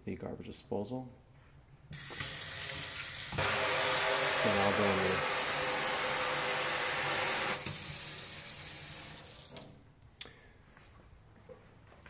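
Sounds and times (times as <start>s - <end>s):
faucet water running into sink: 2.0s - 9.6s.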